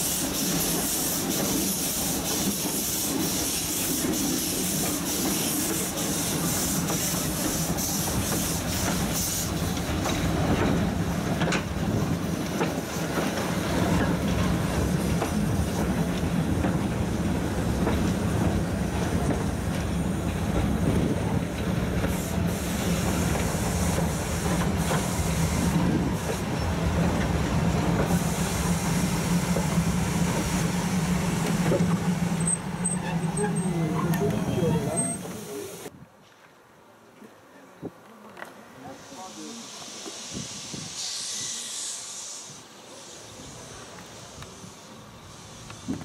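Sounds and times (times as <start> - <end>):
train wheels rumbling on track: 0.0 - 35.9, 39.2 - 46.0
clickety-clack over rail joints: 0.3 - 28.5, 29.2 - 35.5.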